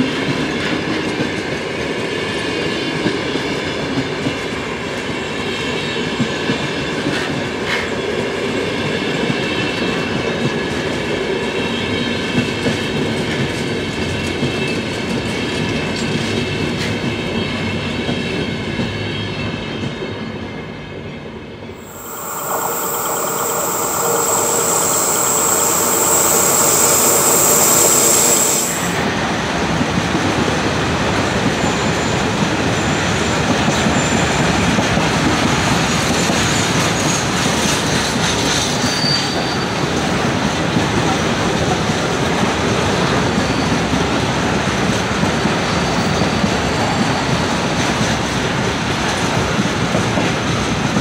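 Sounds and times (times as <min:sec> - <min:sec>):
shrill wheel squeal: 0:21.8 - 0:29.0, 0:38.8 - 0:39.8
train wheels rumbling: 0:21.8 - 0:29.0.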